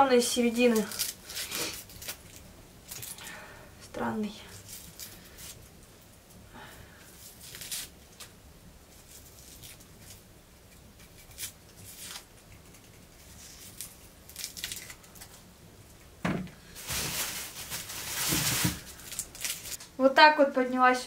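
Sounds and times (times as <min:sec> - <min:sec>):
knife scraping onion skins: 0:00.5 - 0:03.2, 0:07.1 - 0:15.4
loud rustling: 0:16.7 - 0:19.8.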